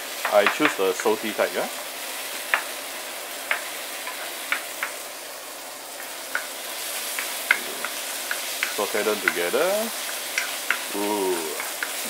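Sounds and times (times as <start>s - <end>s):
food sizzling in hot oil: 0.0s - 12.0s
spatula scraping and tapping pan: 0.2s - 1.2s, 3.4s - 5.0s, 6.0s - 12.0s.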